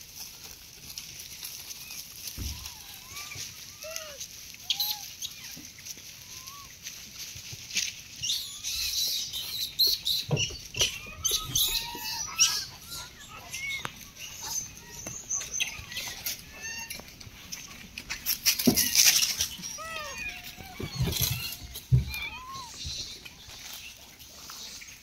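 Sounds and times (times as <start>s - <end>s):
dry leaves crackling and rustling: 0.0s - 25.0s.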